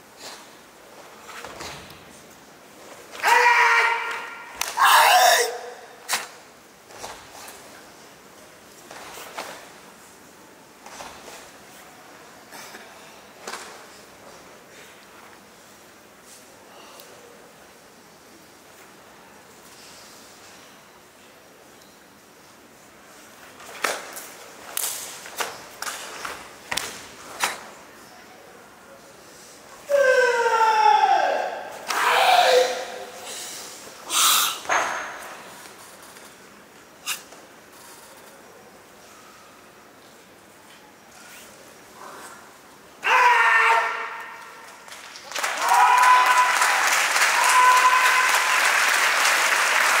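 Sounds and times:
voice calling out: 0:03.2 - 0:05.9
audience applauding: 0:44.9 - 0:50.0.

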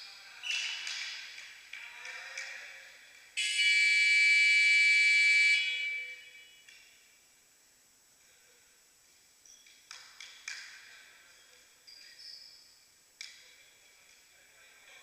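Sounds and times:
loud buzzer tone: 0:03.4 - 0:06.7.

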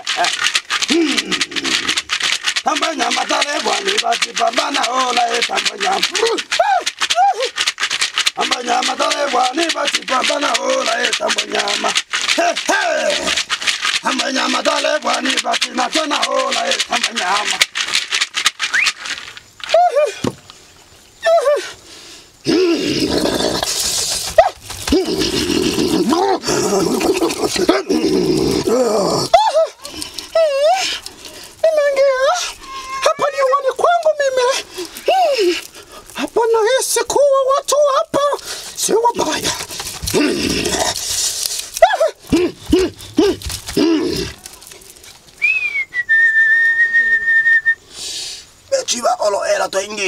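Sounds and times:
gourd rattle shaking: 0:00.0 - 0:21.5, 0:22.4 - 0:46.1
whistle sliding down: 0:18.7 - 0:19.0, 0:45.4 - 0:47.8
dog barking yelps: 0:24.4 - 0:24.6, 0:41.8 - 0:42.2
man barking cries: 0:32.1 - 0:34.6, 0:41.8 - 0:44.1.

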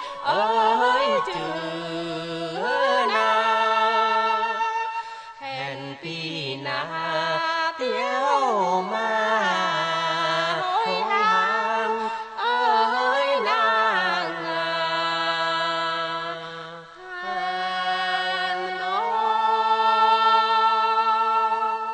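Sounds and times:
person singing folk melody: 0:00.0 - 0:21.9.

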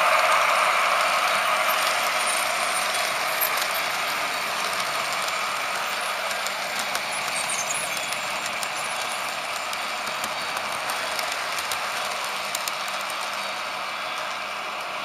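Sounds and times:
model train motor whirring: 0:00.0 - 0:15.0
wheels rolling on track: 0:00.0 - 0:15.0.

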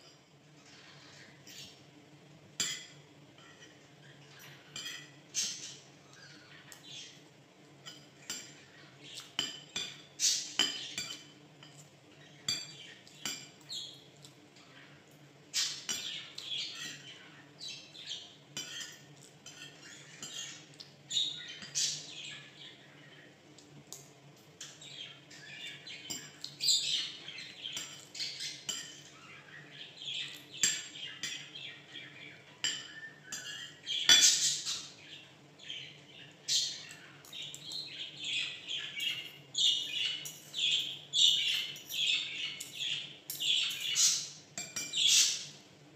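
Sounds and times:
cutlery clinking on plates: 0:02.6 - 0:03.8, 0:04.4 - 0:05.7, 0:07.8 - 0:14.4, 0:15.6 - 0:17.1, 0:18.0 - 0:20.9, 0:25.6 - 0:29.2, 0:30.2 - 0:31.7, 0:32.5 - 0:34.6, 0:39.0 - 0:45.4
bird chirping: 0:12.1 - 0:19.0, 0:19.8 - 0:23.4, 0:24.6 - 0:45.6.

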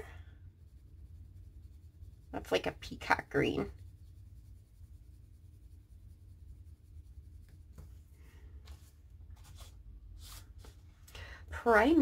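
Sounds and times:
pencil scratching on paper: 0:00.1 - 0:08.1.

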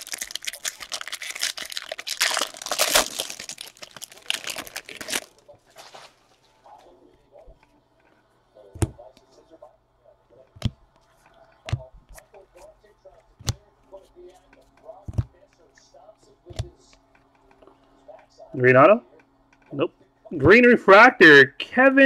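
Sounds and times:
foil wrapper tearing and crinkling: 0:00.0 - 0:05.4
handling cards: 0:00.0 - 0:06.2.

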